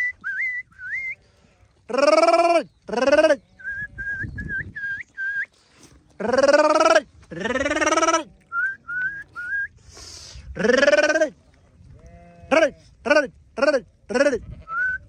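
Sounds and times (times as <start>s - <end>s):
person whistling: 0.0s - 1.2s, 3.6s - 5.5s, 8.5s - 9.8s, 14.7s - 15.0s
sheep bleating: 6.2s - 9.4s, 12.0s - 12.9s, 14.1s - 15.0s.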